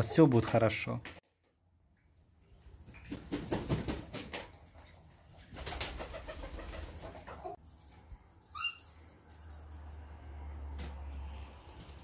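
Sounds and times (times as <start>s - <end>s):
wings flapping: 2.8s - 7.6s.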